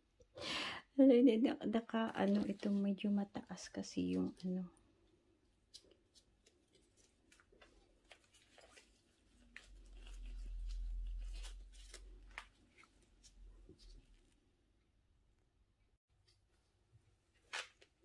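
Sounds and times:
plant and soil rustling: 0:01.9 - 0:04.6, 0:05.6 - 0:14.4.

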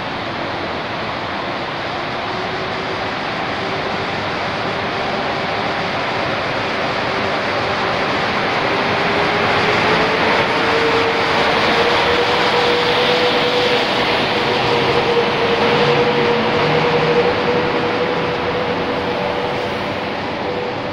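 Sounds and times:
train coaches rolling past: 0:00.0 - 0:20.9.

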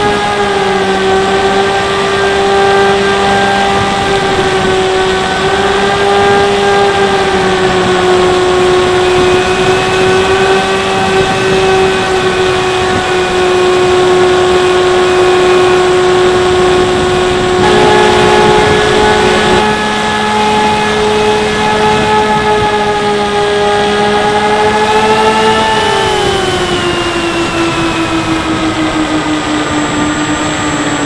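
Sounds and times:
electric motor propeller whining: 0:00.0 - 0:31.0
wind rushing past: 0:23.9 - 0:31.0.

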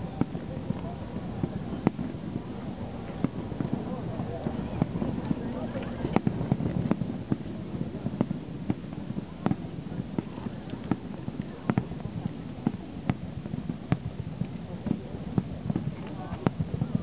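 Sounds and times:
crowd murmur: 0:00.0 - 0:17.0
fireworks bangs: 0:00.0 - 0:17.0.

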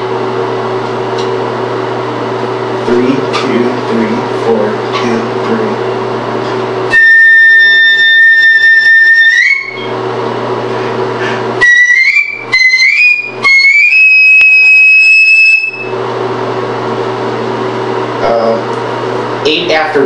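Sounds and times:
piccolo playing high notes: 0:06.9 - 0:09.9, 0:11.6 - 0:15.9.

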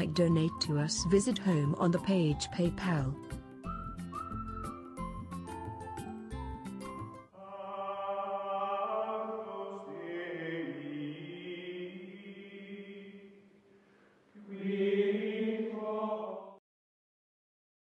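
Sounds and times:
wordless choir singing held chords: 0:07.3 - 0:13.5, 0:14.4 - 0:16.6.

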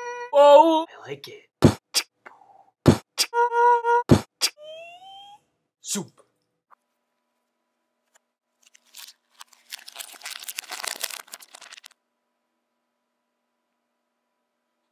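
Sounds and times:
paper crinkling and crackling: 0:08.5 - 0:12.0.

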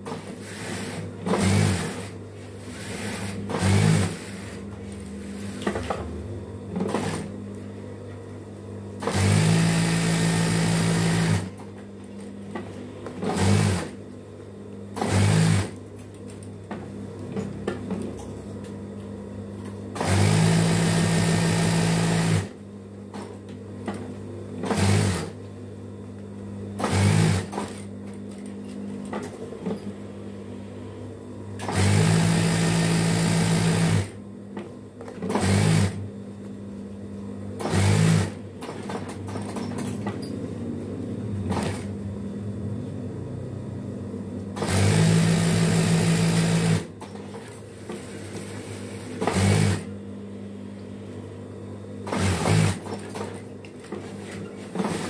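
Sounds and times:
sewing machine stitching: 0:00.0 - 0:04.6, 0:09.0 - 0:11.6, 0:13.2 - 0:14.0, 0:15.0 - 0:15.8, 0:20.0 - 0:22.6, 0:24.6 - 0:25.4, 0:26.8 - 0:27.9, 0:31.6 - 0:34.2, 0:35.2 - 0:36.0, 0:37.6 - 0:39.8, 0:41.5 - 0:41.9, 0:44.6 - 0:49.9, 0:52.0 - 0:55.0.

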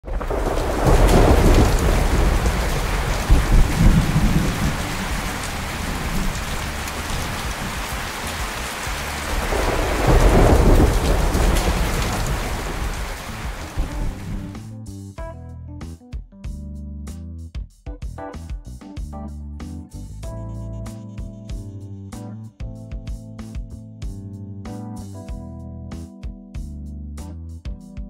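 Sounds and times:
heavy rain: 0:00.0 - 0:14.6
rolling thunder: 0:00.0 - 0:14.6.

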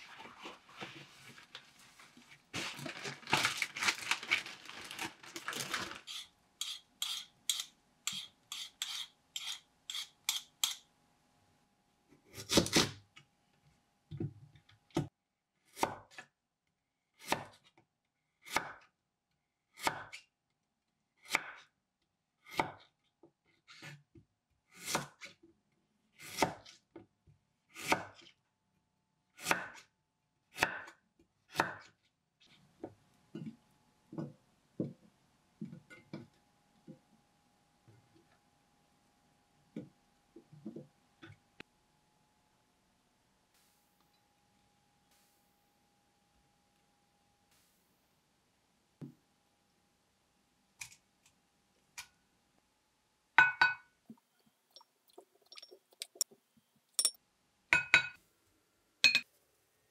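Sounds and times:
plastic bag crinkling: 0:02.6 - 0:06.1.

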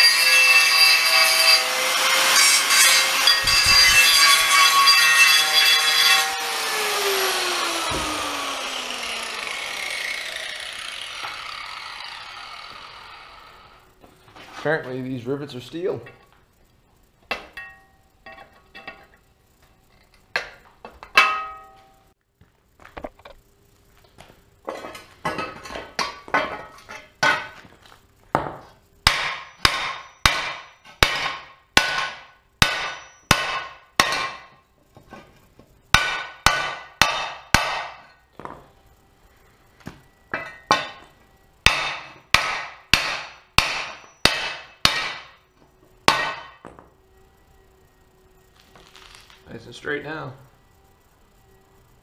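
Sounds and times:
hammer striking metal plate: 0:20.4 - 0:21.8, 0:29.0 - 0:34.6, 0:35.9 - 0:38.1, 0:40.3 - 0:41.0, 0:41.6 - 0:45.4, 0:46.1 - 0:46.6.

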